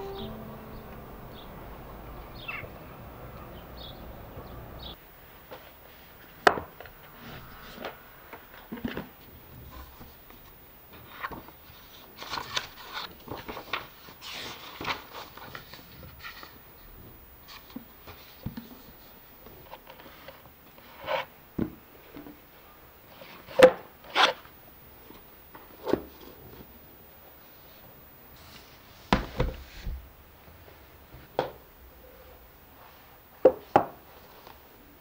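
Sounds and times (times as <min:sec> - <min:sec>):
book pages rustling: 0:08.8 - 0:16.6.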